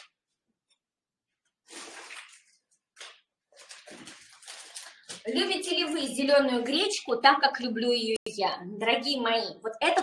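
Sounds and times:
plastic bag rustling: 1.6s - 5.7s.

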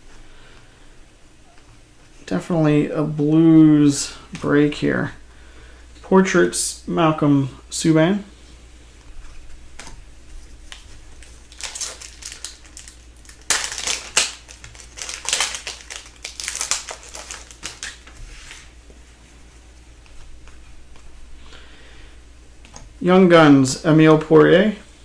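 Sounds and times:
foil wrapper crinkling and tearing: 10.6s - 18.6s.

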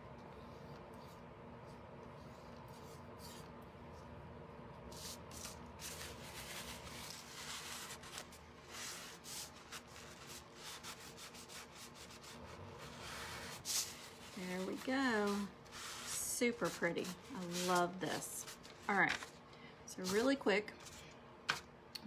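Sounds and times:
faint room hum: 0.0s - 22.0s
paper towel wiping wood: 4.9s - 18.8s.

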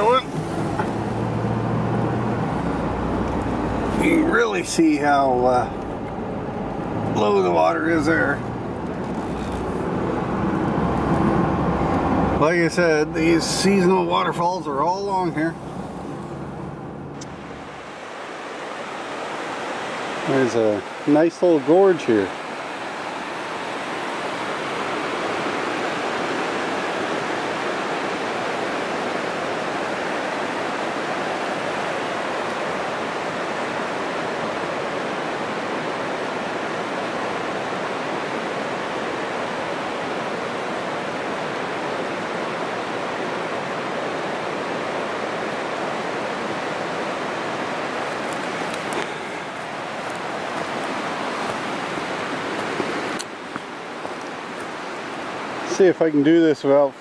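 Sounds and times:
river rushing over rocks: 0.0s - 57.0s.

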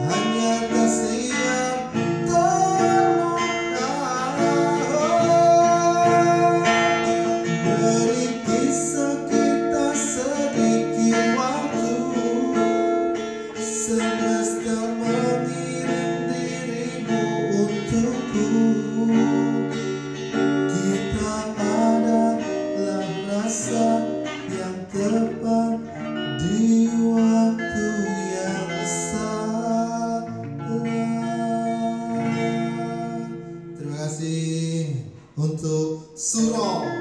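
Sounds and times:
acoustic guitar strumming: 0.0s - 37.0s
man singing a ballad: 0.0s - 37.0s.

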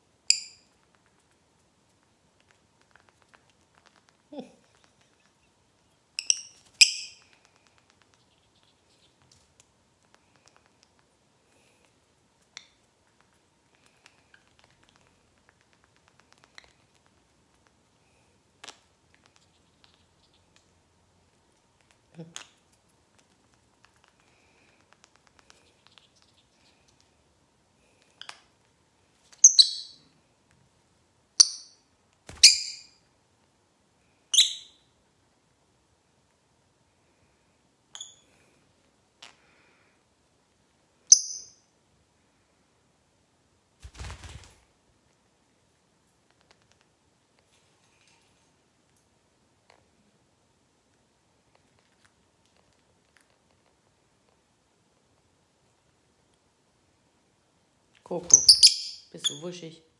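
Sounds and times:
lovebirds chirping: 4.7s - 9.3s, 29.4s - 30.2s, 31.4s - 33.0s, 34.3s - 34.9s, 41.0s - 41.7s, 58.1s - 59.7s
faint light ticks: 9.1s - 11.1s.

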